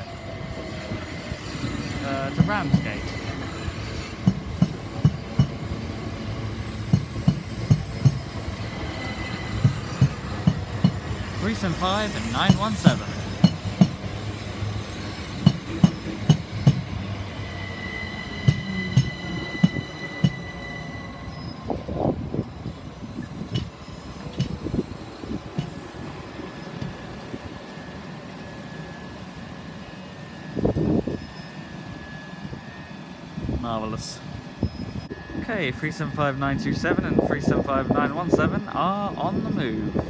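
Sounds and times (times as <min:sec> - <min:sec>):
train clunks and knocks: 0:00.0 - 0:27.7
high train tones: 0:00.0 - 0:40.0
train running sound: 0:00.0 - 0:40.0.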